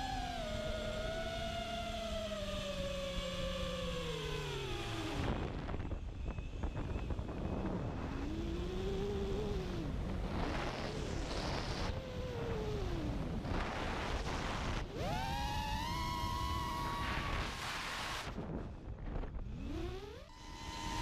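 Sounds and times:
drone motors whining: 0.0s - 21.0s.

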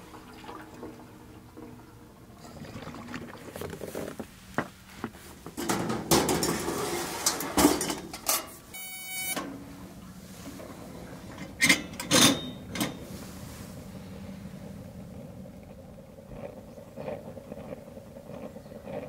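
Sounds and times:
steady low hum: 0.0s - 19.0s
objects knocking and clattering: 3.1s - 8.6s.

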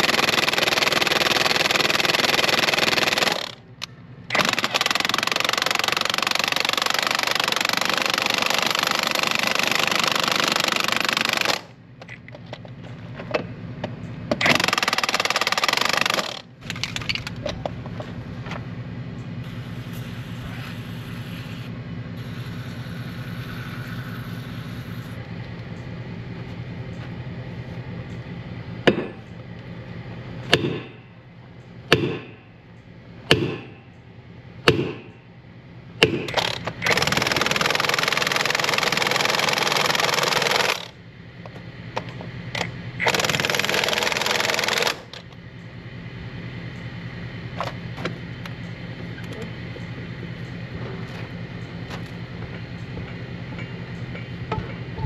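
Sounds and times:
steady engine hum: 0.0s - 55.0s
sledgehammer striking metal: 28.8s - 29.2s, 30.5s - 31.1s, 31.9s - 32.5s, 33.3s - 33.9s, 34.6s - 35.2s
impact wrench hammering: 28.9s - 29.2s, 30.5s - 31.0s, 31.9s - 32.4s, 33.3s - 33.8s, 34.6s - 35.2s, 36.0s - 37.8s.

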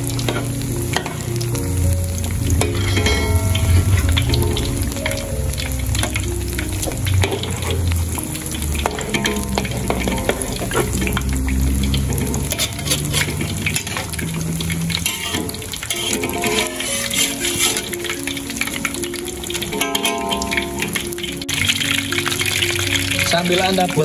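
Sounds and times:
oil crackling sizzle: 0.0s - 24.0s
spatula and tongs stirring: 0.0s - 24.0s.

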